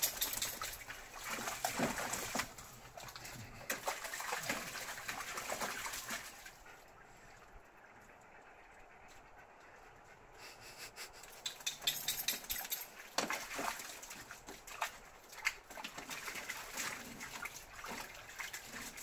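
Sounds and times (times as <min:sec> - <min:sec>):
dogs splashing in water: 0:00.0 - 0:07.2, 0:11.4 - 0:19.0.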